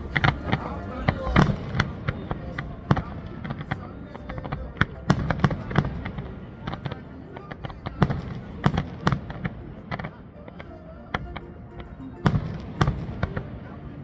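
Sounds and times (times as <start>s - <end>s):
firework bangs and crackling: 0.0s - 10.2s.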